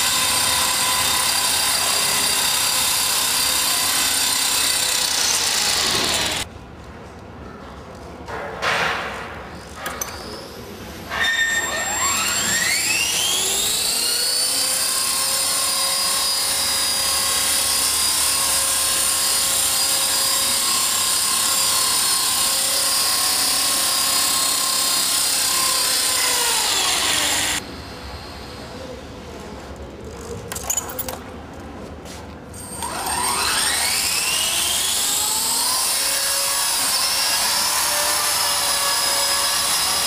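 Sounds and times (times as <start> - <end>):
electric helicopter motor whine: 3.4 - 6.4, 20.8 - 27.6.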